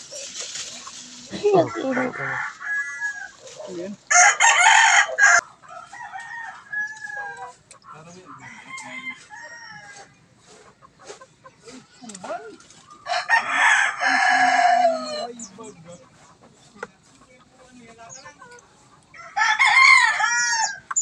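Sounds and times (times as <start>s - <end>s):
chicken clucks: 0.0s - 21.0s
rooster crowing: 1.4s - 3.4s, 4.1s - 7.6s, 8.3s - 10.1s, 13.0s - 15.4s, 19.1s - 20.9s.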